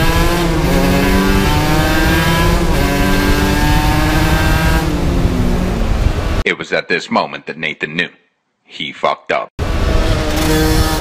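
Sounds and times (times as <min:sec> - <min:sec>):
motorcycle engine accelerating: 0:00.0 - 0:06.4, 0:09.6 - 0:11.0
wind rush: 0:00.1 - 0:06.4.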